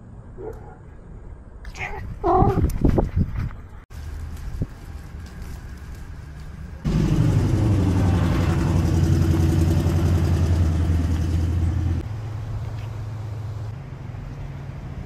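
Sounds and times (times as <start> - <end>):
engine humming: 3.9 - 15.0.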